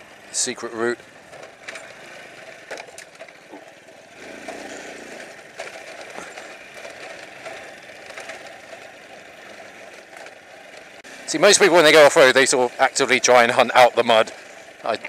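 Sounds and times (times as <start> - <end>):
motorcycle rattles and knocks: 0.0 - 11.1
motorcycle engine running: 0.0 - 15.0.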